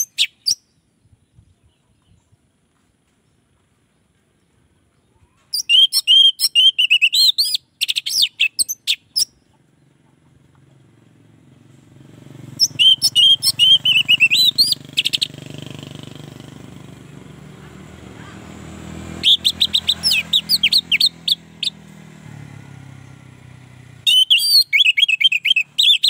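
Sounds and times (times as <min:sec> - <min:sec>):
bird singing whistles and trills: 0:00.0 - 0:00.8, 0:05.5 - 0:09.4, 0:12.5 - 0:15.4, 0:19.2 - 0:21.8, 0:24.0 - 0:26.0
passing vehicle engine hum: 0:08.7 - 0:26.0.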